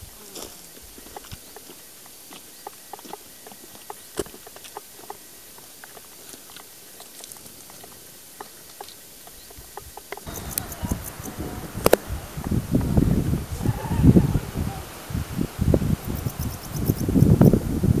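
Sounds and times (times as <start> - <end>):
steady hiss: 0.0 - 18.0
small clicks and ticks: 10.0 - 12.0.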